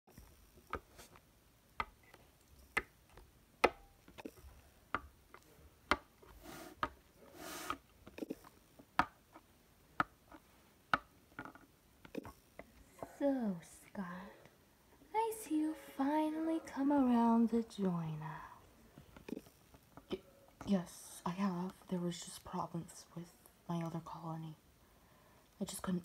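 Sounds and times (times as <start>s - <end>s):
soft rubbing sound: 6.2s - 7.8s.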